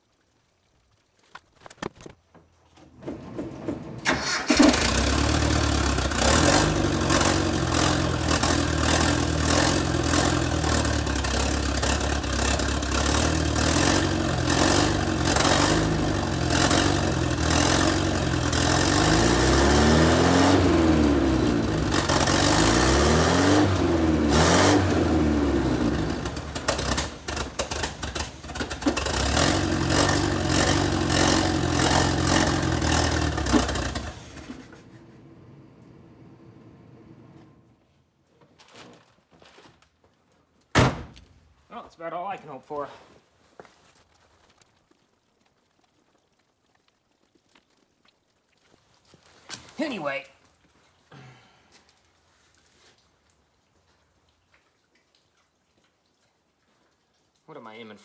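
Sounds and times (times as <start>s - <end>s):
car engine starting and revving: 3.0s - 37.8s.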